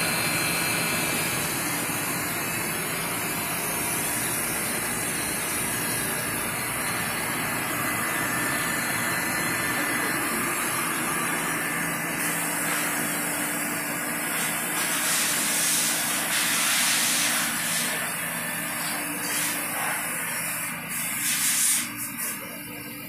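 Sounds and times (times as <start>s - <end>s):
motor hum: 0.0s - 21.3s
loud hiss: 14.2s - 22.4s.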